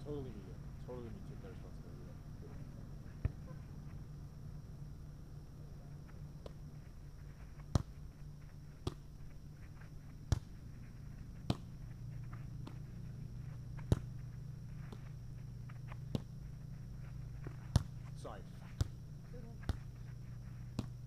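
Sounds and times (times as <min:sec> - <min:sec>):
steady low hum: 0:00.0 - 0:21.0
hands slapping volleyball: 0:20.7 - 0:21.0.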